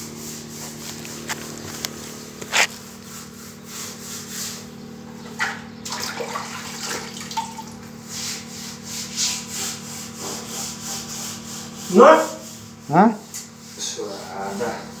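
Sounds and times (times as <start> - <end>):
brush scrubbing fiberglass: 0.0 - 4.8, 7.9 - 15.0.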